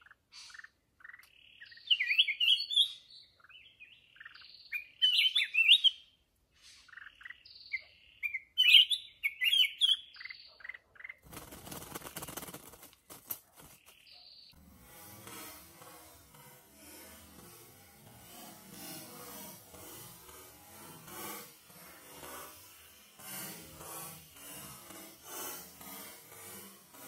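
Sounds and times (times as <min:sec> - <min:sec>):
rough rustling noise: 0:11.2 - 0:27.0.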